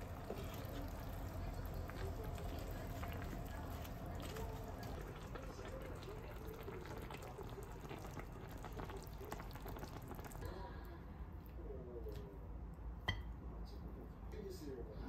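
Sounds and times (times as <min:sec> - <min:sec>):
stew bubbling in a pan: 0:00.0 - 0:10.9.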